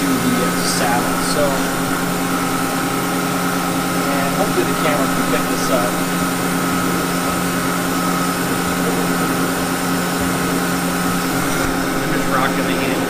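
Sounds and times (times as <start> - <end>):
mill machine humming: 0.0 - 13.0.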